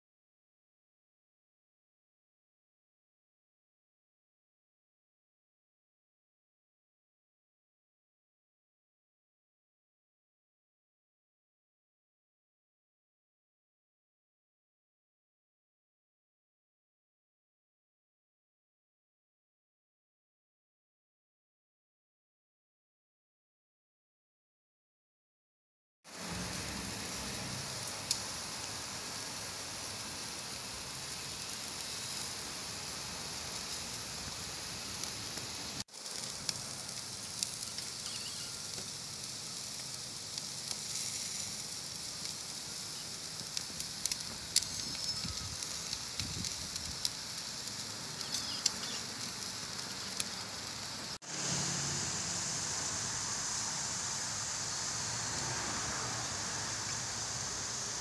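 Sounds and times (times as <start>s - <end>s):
fire crackling pops: 26.1s - 51.6s
steak sizzling on a grill: 26.1s - 58.0s.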